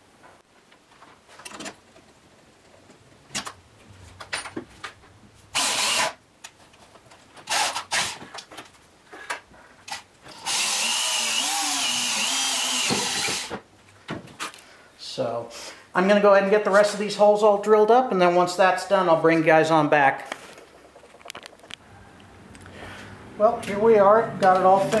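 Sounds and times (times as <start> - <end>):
power drill boring wood: 5.6 - 6.2, 7.5 - 8.1, 10.3 - 13.6
handling clicks and knocks: 20.3 - 21.8.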